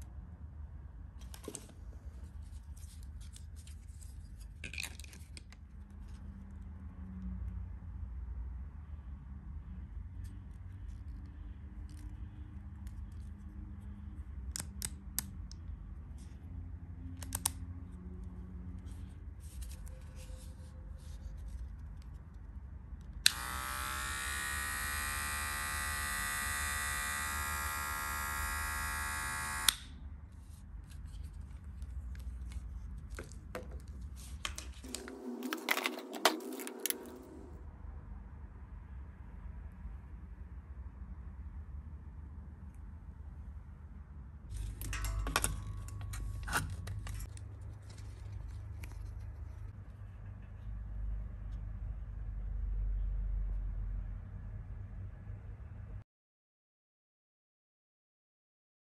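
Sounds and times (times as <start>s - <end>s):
electric hair clipper running: 23.2s - 29.8s
hair clipper switch click: 23.2s - 29.9s.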